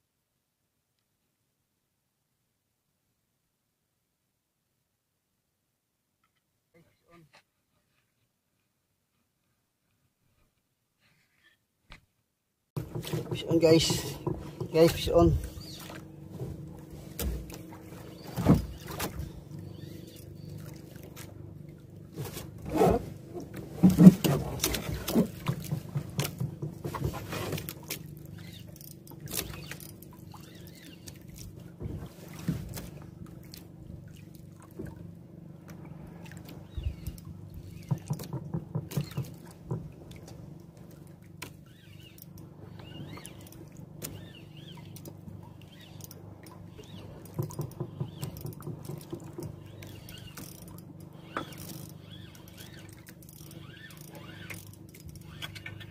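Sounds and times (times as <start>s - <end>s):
boat engine humming: 12.8s - 55.9s
knocks and clicks of fishing reel: 23.8s - 31.2s, 36.6s - 39.9s, 41.4s - 55.9s.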